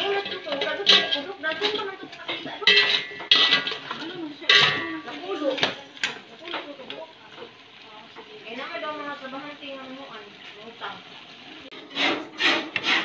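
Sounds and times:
metal spoon scraping a pot: 0.0 - 5.4, 11.7 - 13.0.

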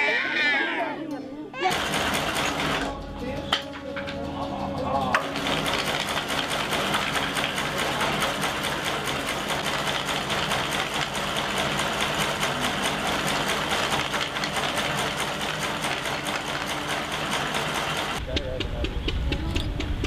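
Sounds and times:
sewing machine running: 1.6 - 3.0, 4.8 - 18.2.

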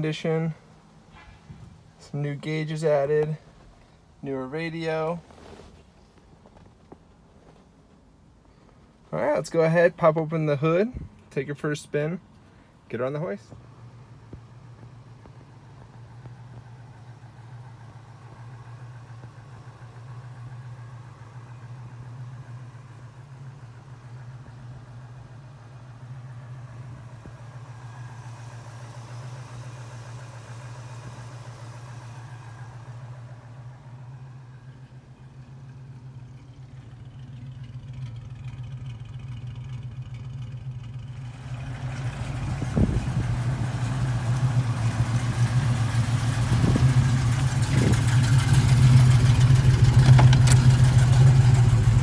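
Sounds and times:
car engine idling: 0.0 - 52.0
thump: 1.1 - 1.8.

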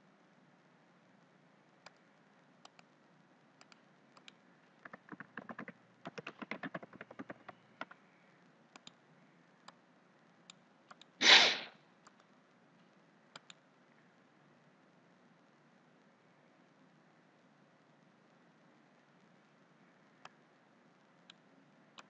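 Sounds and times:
mouse clicks: 1.8 - 2.0, 2.6 - 2.9, 3.6 - 8.0, 8.7 - 9.0, 10.5 - 11.4, 12.0 - 12.3, 13.3 - 13.6
keyboard typing clicks: 2.6 - 2.9, 3.6 - 8.0, 8.7 - 9.0, 10.5 - 11.2, 12.0 - 12.3, 13.3 - 13.6.

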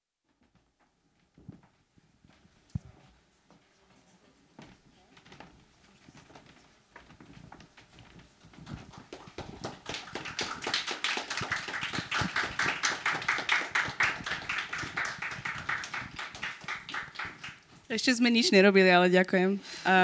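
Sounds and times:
audience applauding: 8.9 - 18.4.

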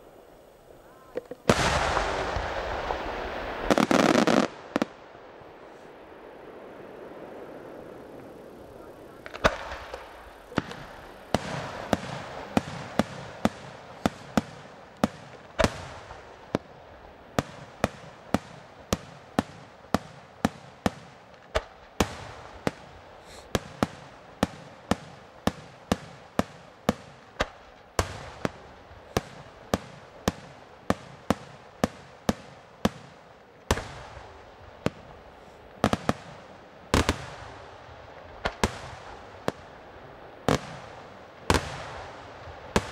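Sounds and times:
fireworks bursting: 0.0 - 42.9.

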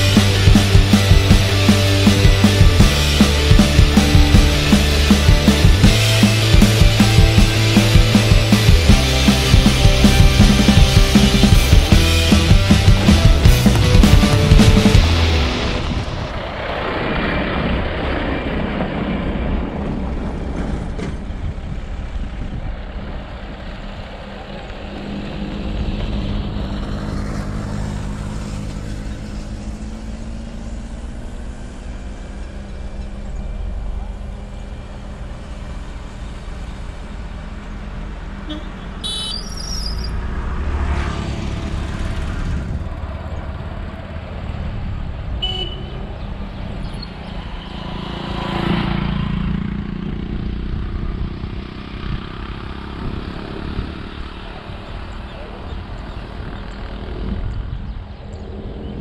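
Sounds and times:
vehicle engine and road rumble: 0.0 - 59.0
vehicles passing: 0.0 - 59.0.

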